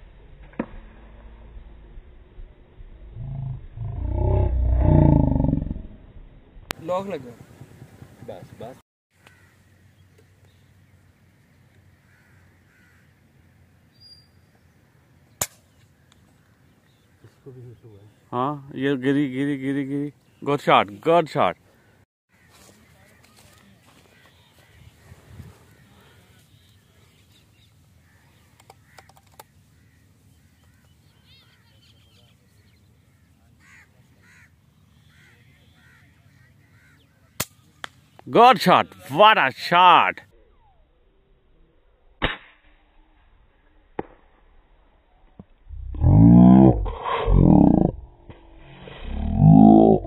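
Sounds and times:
distant bird calls: 6.8s - 41.1s.

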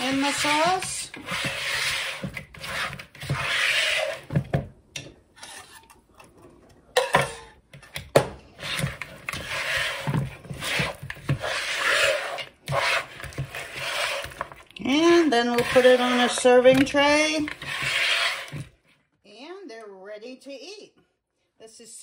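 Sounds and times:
spatula scraping a mixing bowl: 0.0s - 4.5s, 5.4s - 6.0s, 8.5s - 18.8s.

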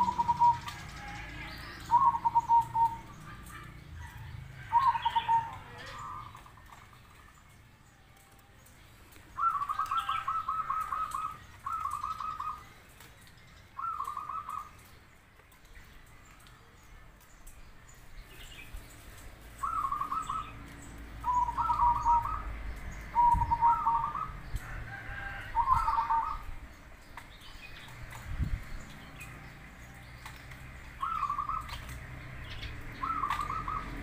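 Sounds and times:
dove cooing: 0.0s - 7.2s, 9.4s - 12.7s, 13.8s - 14.8s, 19.6s - 20.6s, 21.2s - 24.4s, 25.4s - 26.5s, 31.0s - 31.9s, 32.5s - 34.0s.

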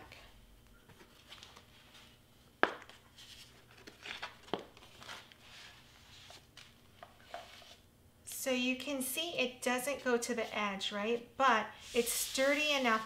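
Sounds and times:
foam board scraping and rustling: 11.8s - 13.0s.

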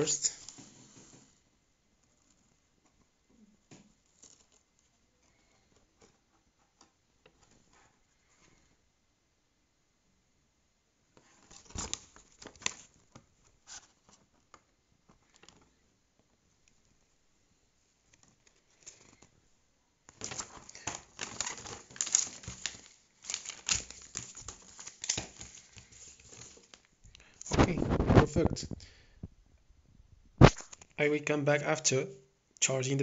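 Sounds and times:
paper rustling and crinkling: 3.9s - 6.4s, 11.2s - 16.3s, 18.1s - 19.4s, 20.1s - 28.5s.

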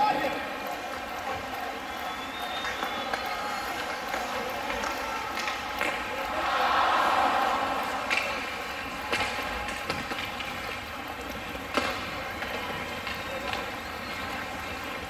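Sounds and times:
crowd and skating noise: 0.0s - 15.0s
hockey sticks and puck knocks: 4.1s - 6.1s, 7.8s - 13.7s.

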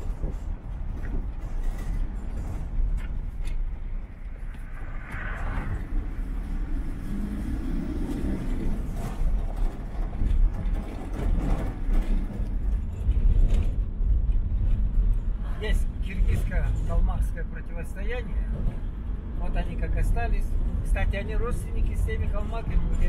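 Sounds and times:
car engine: 0.0s - 15.9s
road rumble: 0.0s - 23.0s.

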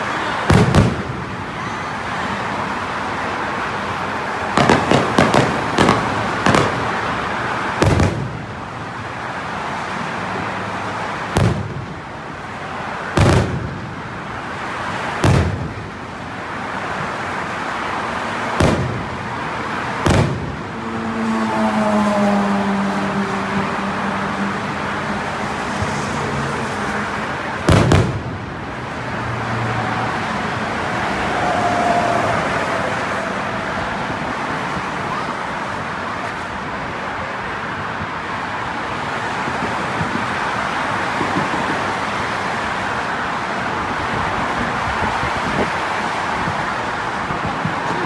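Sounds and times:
fireworks booming: 0.4s - 1.5s, 4.5s - 8.6s, 11.3s - 12.0s, 13.1s - 14.1s, 15.2s - 16.0s, 18.5s - 20.8s, 27.6s - 28.4s.

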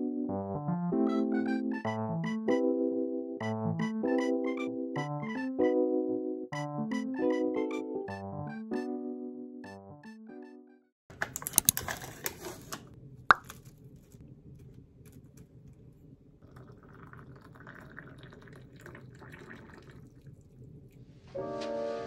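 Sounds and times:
crinkly clicks: 11.1s - 15.9s
water pouring into mug: 16.4s - 21.0s.

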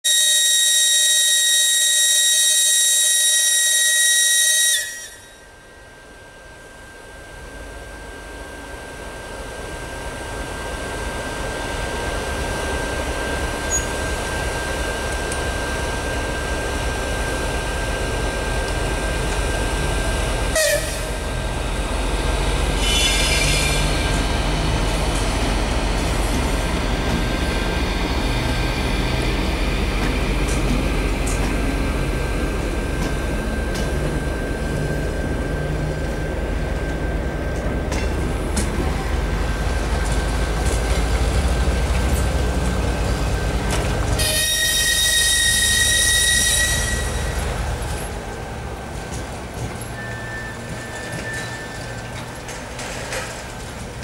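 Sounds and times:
locomotive horn: 0.1s - 5.5s, 20.5s - 21.2s, 22.8s - 24.0s, 44.1s - 47.8s
thin steady whine: 4.8s - 42.3s
train wheels clicking over rails: 22.5s - 35.0s
diesel engine rumble: 23.8s - 44.2s.

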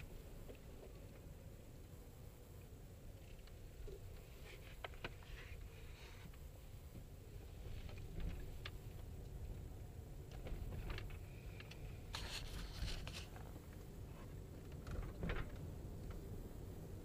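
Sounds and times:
rustling hiss: 0.0s - 14.5s
car cabin rumble: 3.6s - 17.0s
small clicks and rattles: 10.2s - 13.8s, 14.4s - 16.4s.

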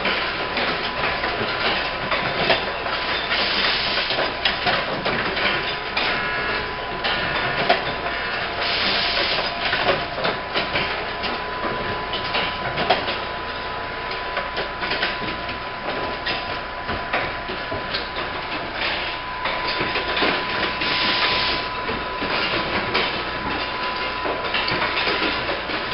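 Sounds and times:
machine clattering and clicking: 0.0s - 25.9s.

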